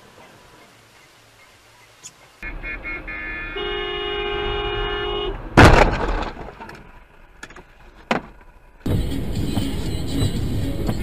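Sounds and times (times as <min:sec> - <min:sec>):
car horn beeping: 0:02.4 - 0:05.5
car collision crash: 0:05.5 - 0:06.7.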